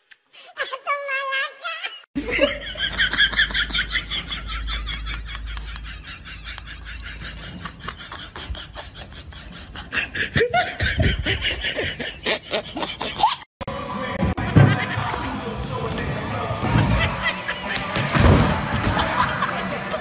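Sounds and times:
high-pitched laughing: 0:00.0 - 0:13.5, 0:16.7 - 0:18.0.

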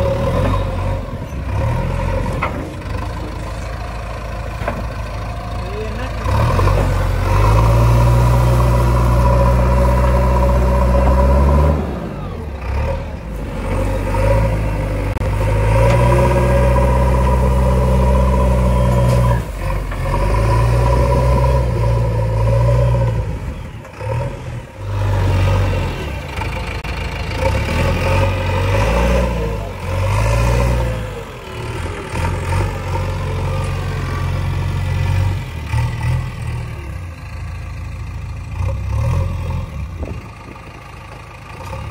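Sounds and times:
diesel engine revving under load: 0:00.0 - 0:41.9
loader bucket scraping soil: 0:06.0 - 0:26.2.

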